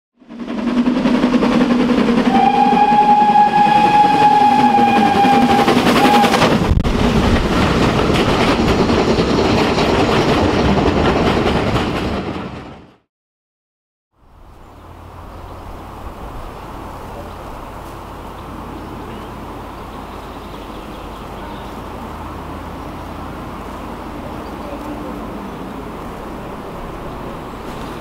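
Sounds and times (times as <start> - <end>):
steam locomotive passing: 0.2 - 13.0, 14.3 - 28.0
rush of exhaust and train noise: 0.2 - 13.1, 14.2 - 28.0
steam whistle blast: 2.2 - 6.5.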